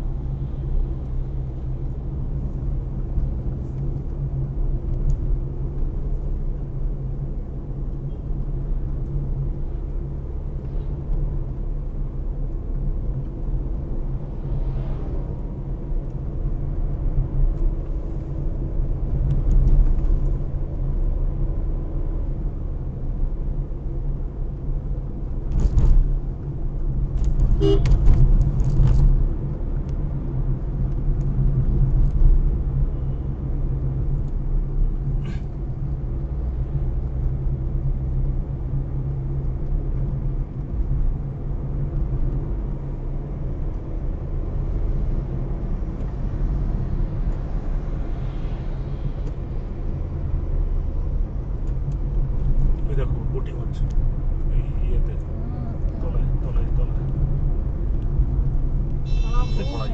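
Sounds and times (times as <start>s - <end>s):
car engine and tyre rumble: 0.0s - 59.9s
car horn toot: 27.6s - 28.0s, 59.0s - 59.9s.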